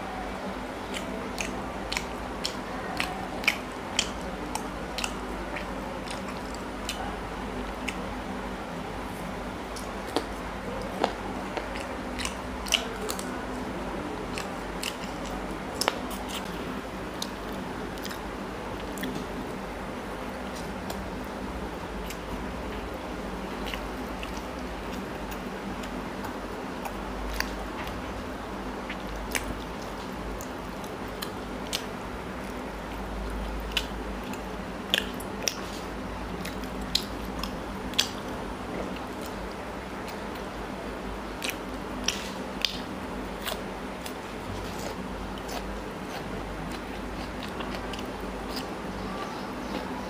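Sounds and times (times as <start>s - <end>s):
man chewing food: 0.0s - 50.0s
steady low hum: 0.0s - 50.0s.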